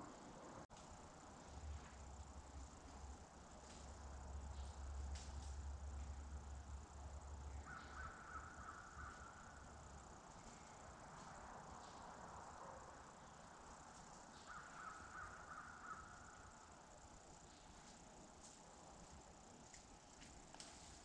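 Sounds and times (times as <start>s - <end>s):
distant crow cawing: 7.5s - 10.8s, 14.3s - 16.6s.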